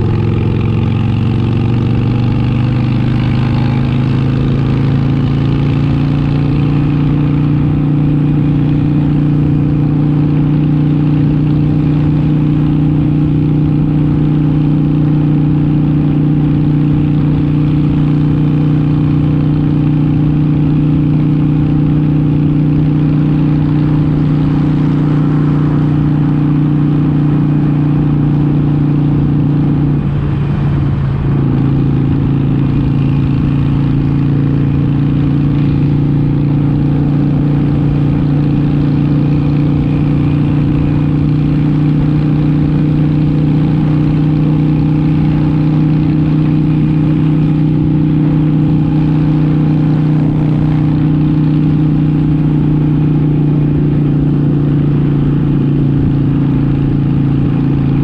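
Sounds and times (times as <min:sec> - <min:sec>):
motorcycle engine cruising: 0:00.0 - 0:58.0.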